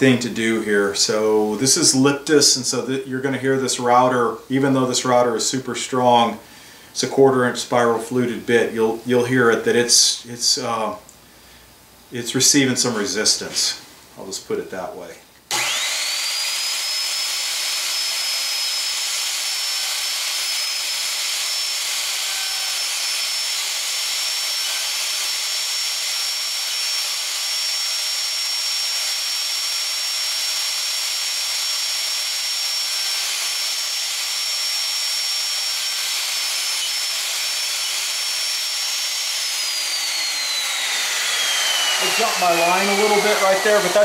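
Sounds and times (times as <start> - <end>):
router whining: 15.5 - 44.0.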